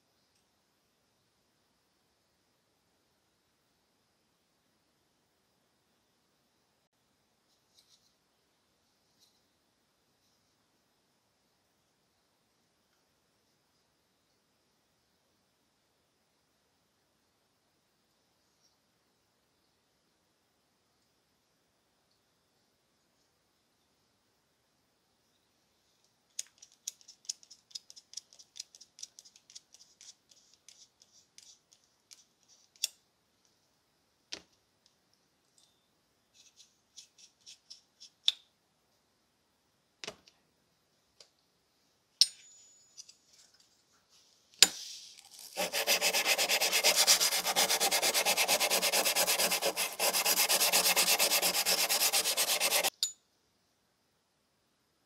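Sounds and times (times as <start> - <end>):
sandpaper rubbing on metal: 45.4 - 52.9.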